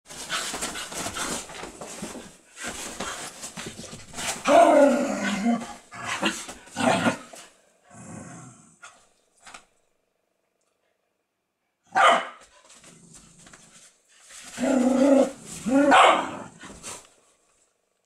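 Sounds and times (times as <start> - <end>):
dogs scuffling on a bed: 0.0 - 7.5, 12.4 - 16.0, 16.6 - 17.2
dogs play growling: 0.1 - 9.0, 12.7 - 17.1.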